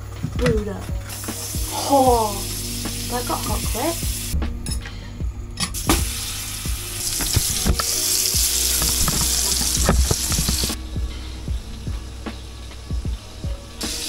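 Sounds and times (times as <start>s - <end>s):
patties sizzling in frying pan: 5.8s - 10.8s.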